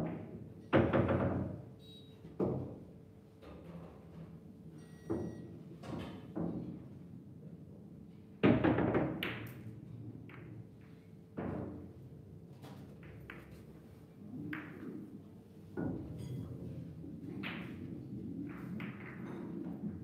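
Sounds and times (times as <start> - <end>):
billiard balls knocking: 8.5 - 9.7, 14.5 - 15.1, 17.2 - 20.0.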